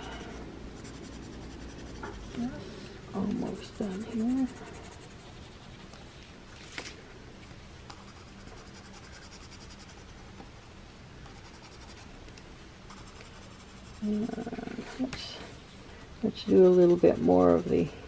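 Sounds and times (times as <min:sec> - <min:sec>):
coloring pencil scratching on paper: 0:00.0 - 0:02.6, 0:03.2 - 0:06.0, 0:07.9 - 0:12.1, 0:12.9 - 0:14.5, 0:16.2 - 0:18.0.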